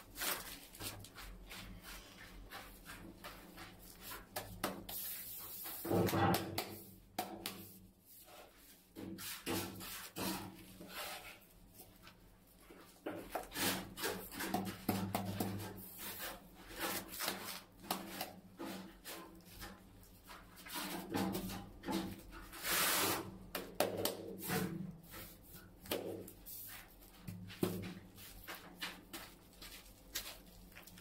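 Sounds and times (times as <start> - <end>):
tiles scraping into adhesive: 22.5 - 23.3.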